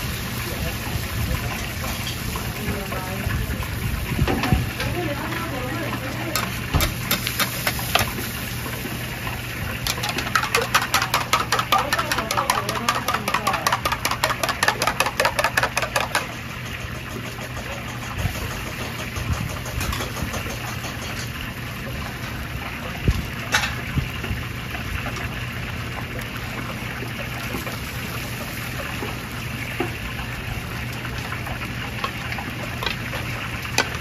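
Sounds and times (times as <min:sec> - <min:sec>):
rapid tapping of kitchen utensil: 0:06.3 - 0:08.1, 0:09.8 - 0:21.2.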